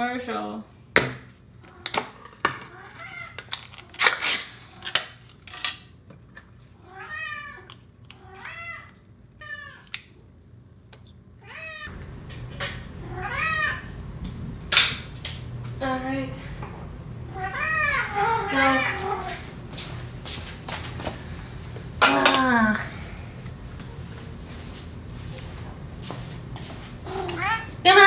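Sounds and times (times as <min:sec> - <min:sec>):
cat meowing: 0:13.0 - 0:13.9, 0:17.3 - 0:19.4, 0:27.1 - 0:27.8.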